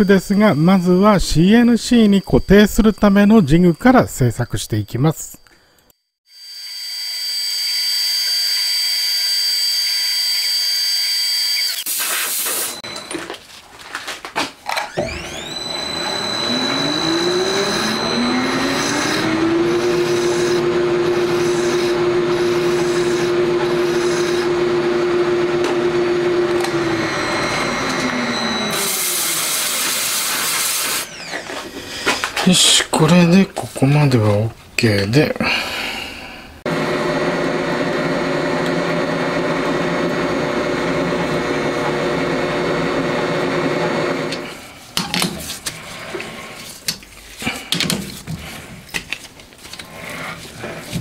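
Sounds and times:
metal lathe whining: 6.4 - 11.9, 14.8 - 31.8, 36.7 - 44.9
cutting hiss: 11.7 - 12.8.

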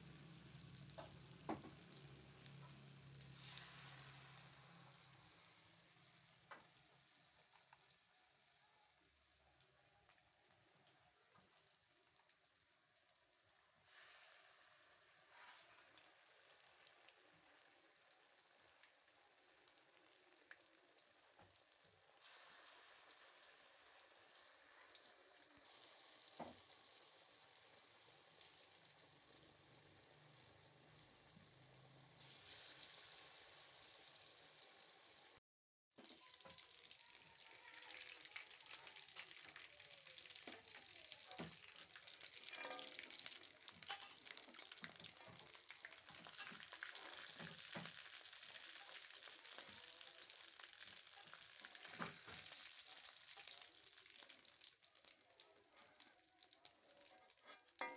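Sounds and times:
fritters sizzling in hot oil: 0.0 - 35.4, 36.0 - 57.9
slotted spoon scraping a pan: 43.8 - 44.4, 46.2 - 47.2, 57.3 - 57.9.

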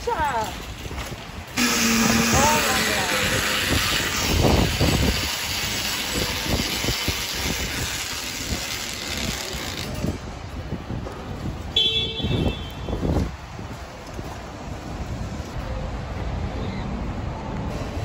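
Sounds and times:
shopping cart rattling over concrete: 0.0 - 10.3
car horn beep: 11.8 - 13.0.

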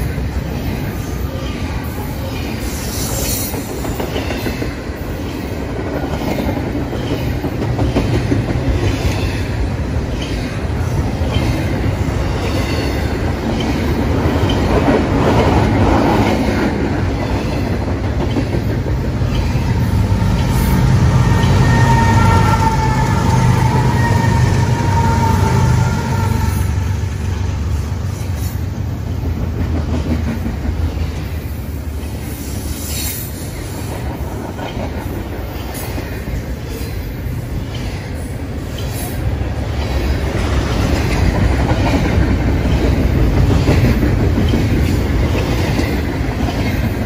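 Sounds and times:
train cars rumbling past: 0.0 - 47.0.

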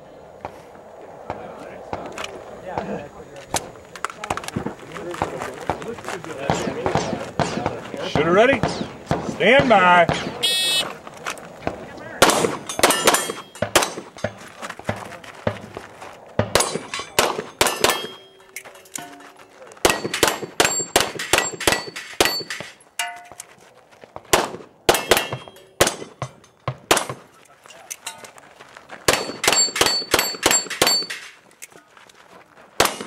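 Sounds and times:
handgun shots: 12.2 - 14.1, 16.5 - 18.3, 19.8 - 23.2, 24.3 - 27.3, 29.1 - 31.3, 32.8 - 33.0
steel plate ringing: 12.7 - 14.3, 16.6 - 23.4, 24.9 - 26.6, 29.2 - 31.4.

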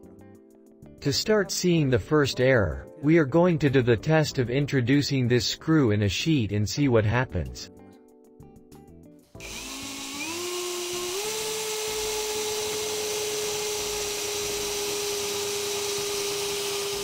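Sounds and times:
power drill driving screw into steel: 9.4 - 17.0.

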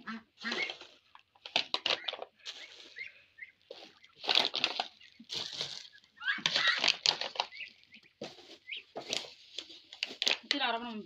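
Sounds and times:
ducks quacking: 0.0 - 1.0, 1.8 - 9.4.

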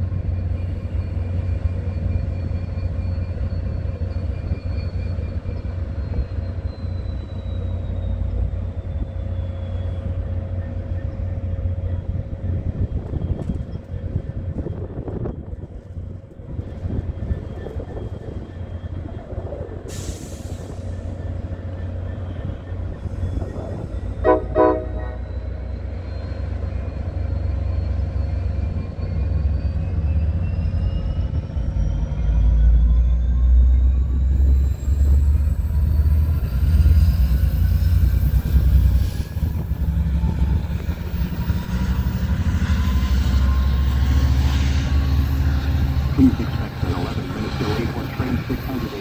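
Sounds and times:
diesel locomotive engine rumbling: 0.0 - 49.0
train horn toots: 24.2 - 25.6.

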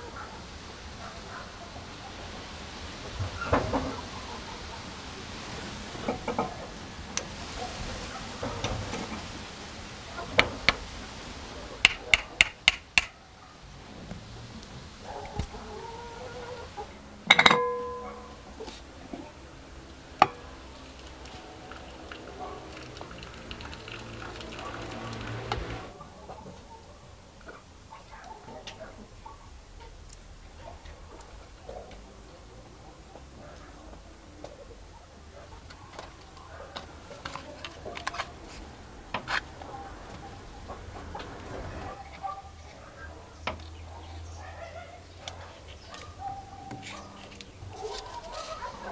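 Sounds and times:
glass bowl clinking and ringing: 17.3 - 18.4.

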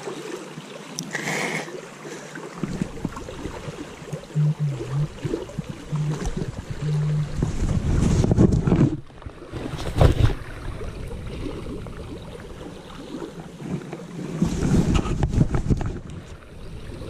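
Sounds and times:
creek rushing: 0.0 - 8.4
wind buffeting microphone: 5.1 - 12.3, 14.5 - 17.0.

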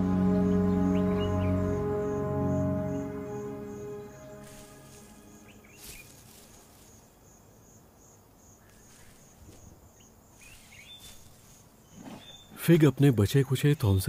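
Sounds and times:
insects chirping: 0.0 - 14.0
short bird chirps: 11.9 - 12.6.

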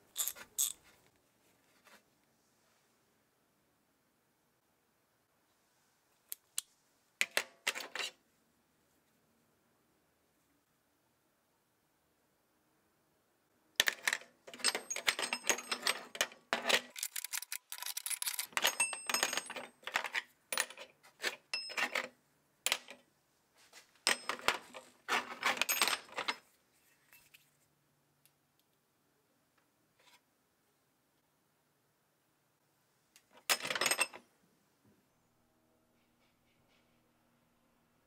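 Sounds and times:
metal sockets clinking: 13.8 - 20.8.

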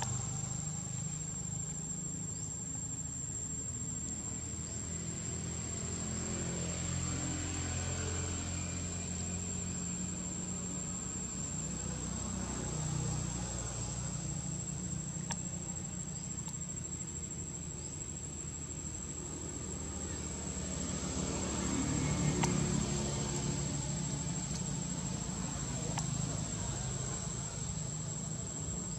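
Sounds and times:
insects droning: 0.0 - 28.9
faint clicks: 15.2 - 15.5, 25.8 - 26.2.

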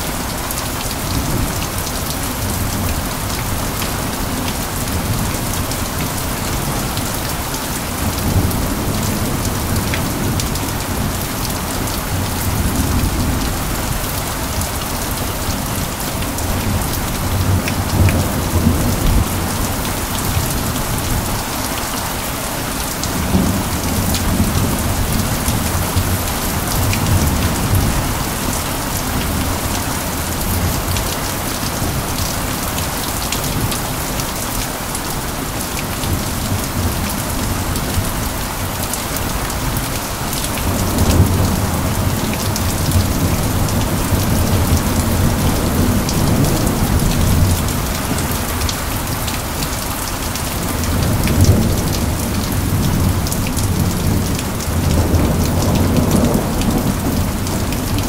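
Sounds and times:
heavy rain pattering: 0.0 - 58.0.

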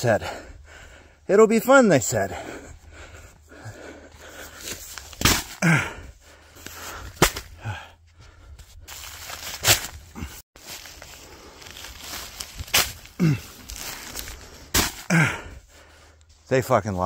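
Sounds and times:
person sighing: 5.6 - 6.0, 7.6 - 8.0, 13.1 - 14.2, 15.1 - 15.6
footsteps on leaf litter: 8.8 - 14.6.

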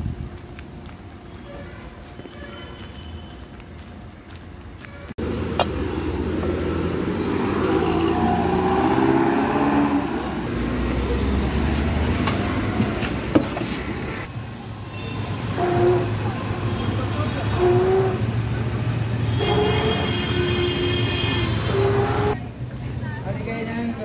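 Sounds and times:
traffic on wet street: 0.0 - 23.8
vehicle engine running close: 5.2 - 14.8.

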